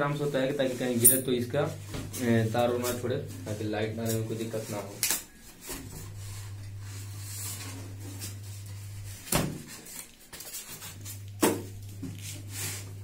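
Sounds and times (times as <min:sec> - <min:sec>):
foam packing being worked off: 0:01.9 - 0:13.0
low hum: 0:05.7 - 0:09.3.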